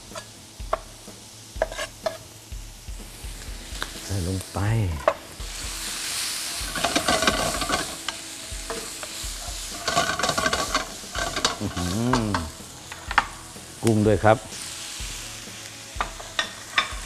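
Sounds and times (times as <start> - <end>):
squid sizzling in a wok: 0.0 - 17.0
spatula scraping and knocking pan: 1.6 - 2.2, 6.6 - 13.3.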